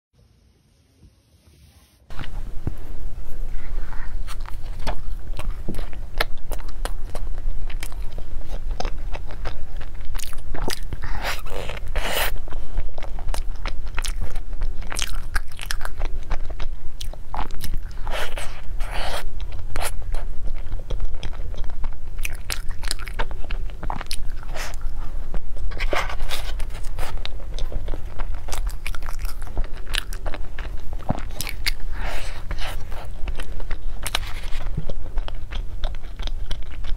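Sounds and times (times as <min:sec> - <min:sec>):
steady low hum: 0:00.2 - 0:36.9
chewing with crackles: 0:02.1 - 0:36.9
crunching pastry bites: 0:04.2 - 0:36.9.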